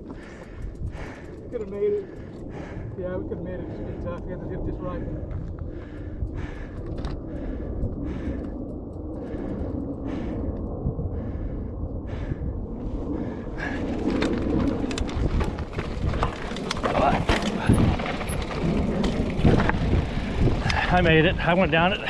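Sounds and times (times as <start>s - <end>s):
bike clicks and rattles: 0.0s - 2.9s, 5.3s - 10.7s, 13.6s - 22.0s
low rumble: 0.0s - 22.0s.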